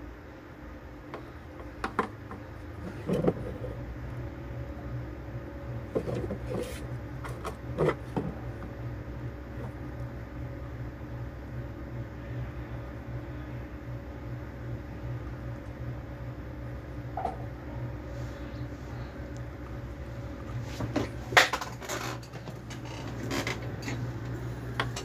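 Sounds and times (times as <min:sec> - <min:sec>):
steady low hum: 0:00.0 - 0:25.0
soldering tools knocking and clicking: 0:01.1 - 0:02.5.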